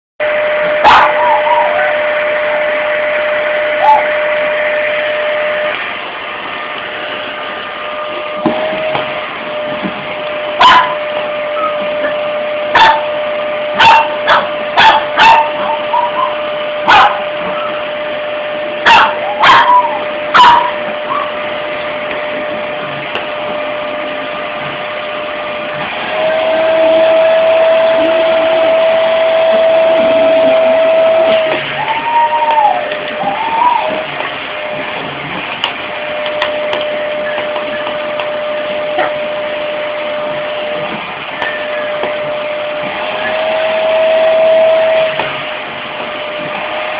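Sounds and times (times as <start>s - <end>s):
vacuum cleaner motor whine: 0.2s - 46.9s
dog barking: 0.8s - 2.0s, 3.8s - 4.1s, 10.6s - 11.0s, 11.6s - 13.1s, 13.8s - 17.7s, 18.8s - 21.4s.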